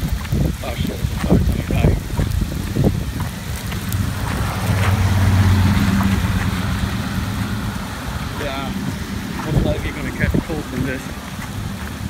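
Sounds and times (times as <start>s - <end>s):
rain hissing: 0.0s - 12.0s
pickup truck driving past: 3.6s - 12.0s.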